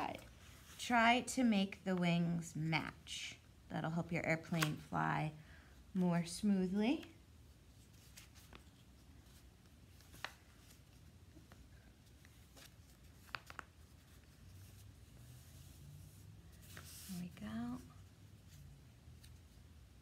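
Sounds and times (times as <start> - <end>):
paper rustling while folded: 7.6 - 20.0.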